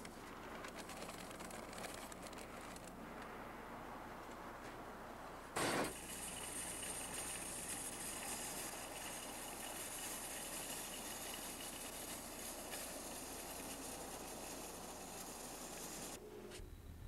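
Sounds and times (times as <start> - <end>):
faint low hum: 0.0 - 17.0
steady hiss: 5.4 - 17.0.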